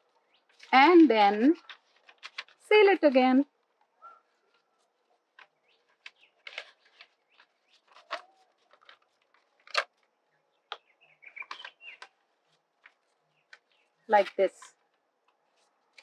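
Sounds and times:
paper strip rustling and crackling: 0.0 - 10.2, 11.4 - 16.0.

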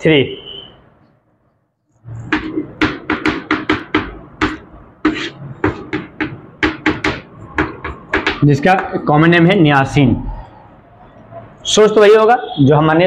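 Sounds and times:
chalk writing on blackboard: 2.2 - 8.9.

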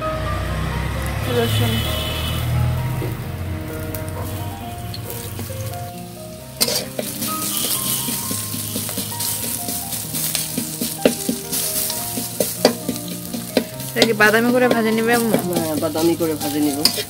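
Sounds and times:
garlic sizzling in hot oil: 1.0 - 17.0
metal spatula scraping pan: 6.5 - 17.0.

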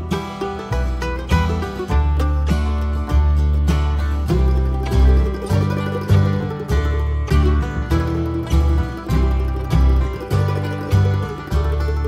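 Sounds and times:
bluegrass music with plucked strings: 0.0 - 12.0.

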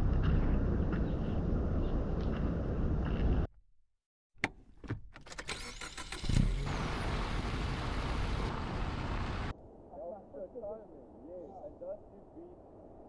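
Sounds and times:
car driving on dirt road: 0.0 - 3.5.

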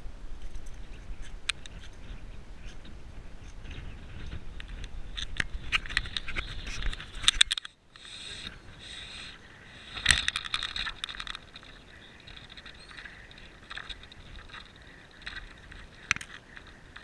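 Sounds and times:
hand rubbing on camera: 8.0 - 17.0.

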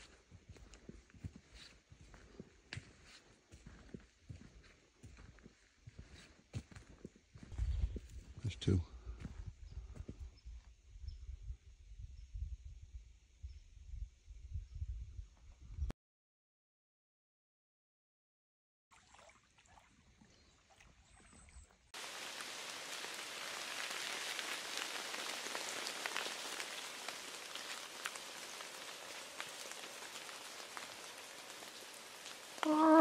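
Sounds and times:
patter and rustle in leaves: 22.0 - 33.0.

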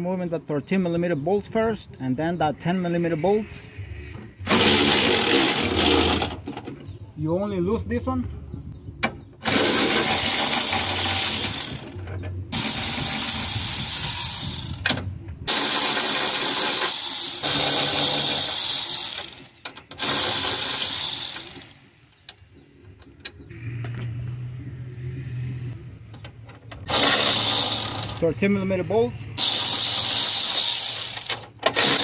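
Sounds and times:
air ratchet running: 4.4 - 6.4, 9.4 - 21.8, 26.8 - 28.2, 29.4 - 32.0.

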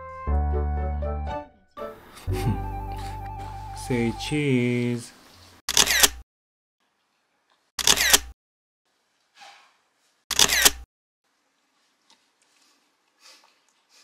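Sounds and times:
camera shutter clicking: 5.7 - 6.2, 7.8 - 8.3, 10.3 - 10.8.

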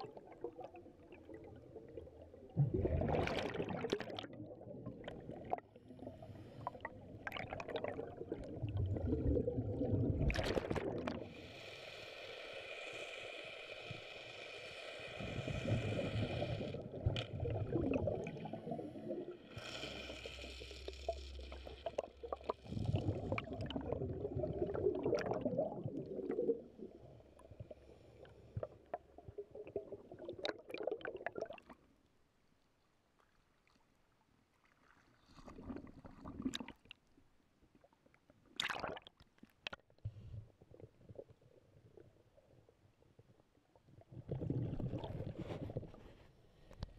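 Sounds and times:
exhaled bubbles rumbling: 0.0 - 11.3, 15.3 - 19.4, 21.5 - 27.9, 28.6 - 31.7, 44.0 - 46.0
regulator hissing inhalations: 11.3 - 16.9, 19.4 - 21.7.

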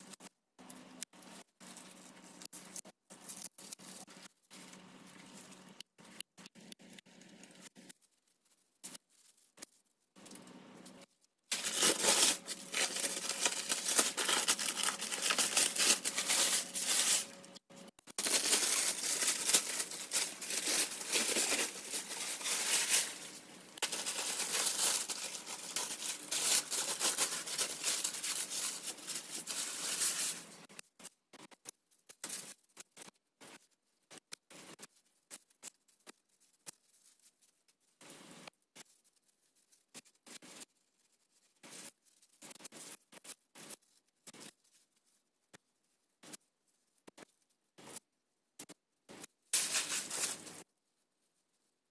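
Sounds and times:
paper crinkling: 0.0 - 48.0, 49.1 - 51.7
tape being peeled and torn: 1.0 - 30.5, 49.5 - 50.7.

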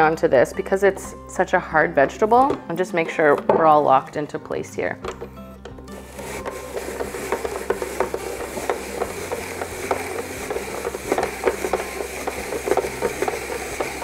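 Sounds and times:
spiralizer rasping: 5.1 - 14.0.

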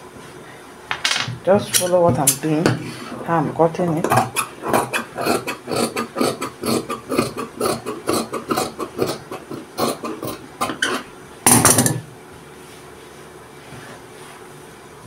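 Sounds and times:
shears snipping fabric: 4.1 - 10.8.

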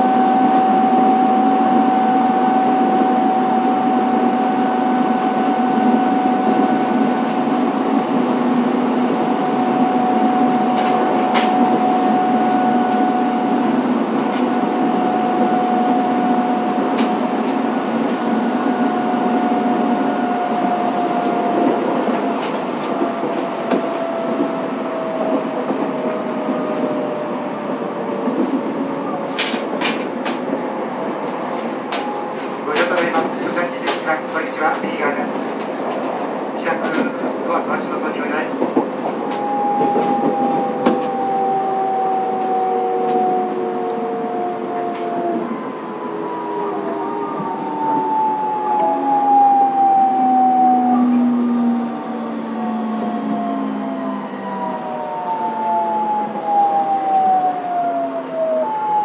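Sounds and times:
train wheels rumbling on rail: 0.0 - 59.0
sharp clicks from track: 29.4 - 30.4
train motor whine: 38.8 - 59.0.

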